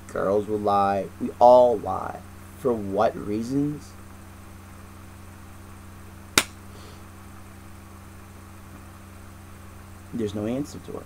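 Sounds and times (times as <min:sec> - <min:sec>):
electrical mains hum: 0:00.0 - 0:11.0
sharp click: 0:06.4 - 0:06.6.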